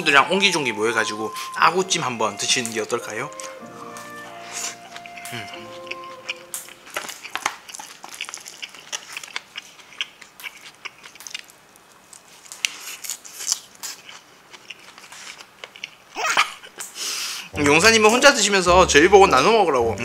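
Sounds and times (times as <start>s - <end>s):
chewing with crunching: 3.3s - 17.0s.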